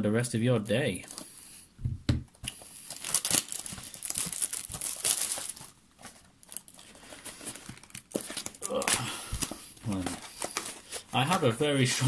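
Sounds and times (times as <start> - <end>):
plastic packaging crinkling and tearing: 2.5 - 12.0.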